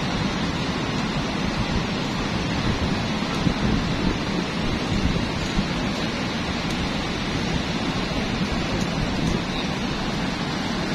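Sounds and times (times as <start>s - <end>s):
surf breaking on beach: 0.0s - 10.9s
wind rumbling on microphone: 0.0s - 10.9s.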